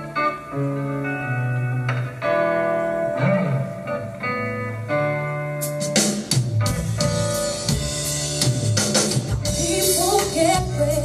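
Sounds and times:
guitar: 0:00.0 - 0:11.0
instrumental music over loudspeakers: 0:00.0 - 0:11.0
drum kit: 0:05.4 - 0:11.0.

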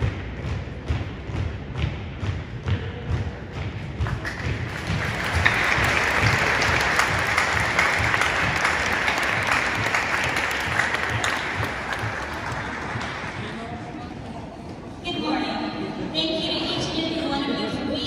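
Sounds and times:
marching steps on wooden floor: 0:00.0 - 0:13.4
spectators applauding and cheering: 0:04.1 - 0:14.0.

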